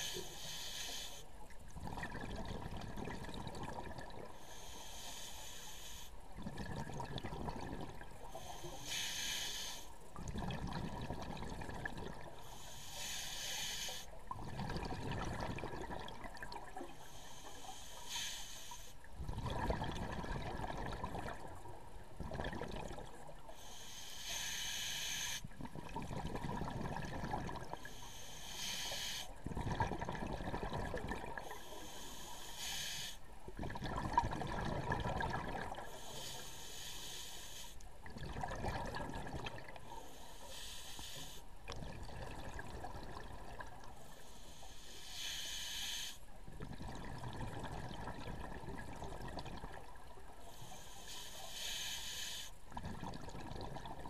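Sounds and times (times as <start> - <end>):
scuba regulator inhalation hiss: 0.0 - 1.3, 4.4 - 6.2, 8.2 - 10.0, 12.4 - 14.2, 16.9 - 19.0, 23.5 - 25.5, 27.8 - 29.4, 31.4 - 33.3, 35.8 - 37.8, 39.9 - 41.5, 44.0 - 46.3, 50.4 - 52.6
gurgle of exhaled bubbles: 1.7 - 4.3, 6.3 - 8.3, 10.2 - 12.4, 14.2 - 16.8, 19.2 - 23.3, 25.5 - 27.8, 29.4 - 31.5, 33.6 - 36.0, 38.0 - 39.8, 41.7 - 44.0, 46.5 - 50.3, 52.7 - 54.0.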